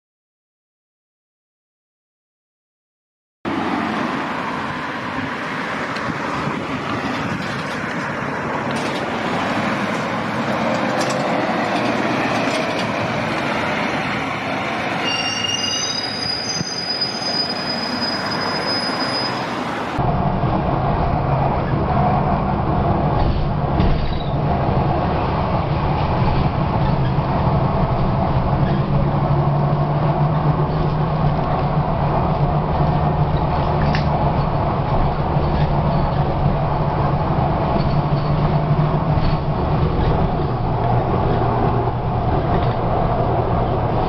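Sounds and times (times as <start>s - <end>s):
bus engine rumble inside cabin: 3.5s - 15.1s, 19.5s - 44.0s
buses passing: 3.5s - 44.0s
high squeal: 14.8s - 20.0s.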